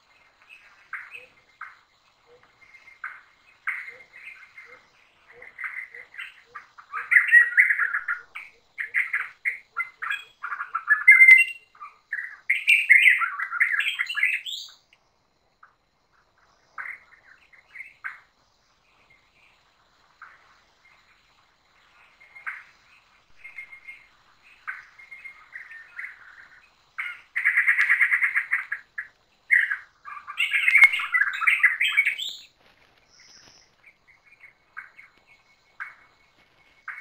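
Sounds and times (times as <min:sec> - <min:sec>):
birds chirping and whistling: 0:05.6 - 0:14.8, 0:29.5 - 0:32.5.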